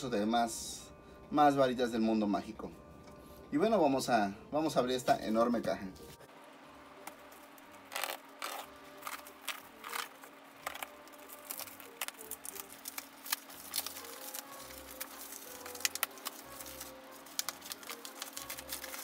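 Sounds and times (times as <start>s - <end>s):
plastic wrap crinkling: 7.0s - 19.0s.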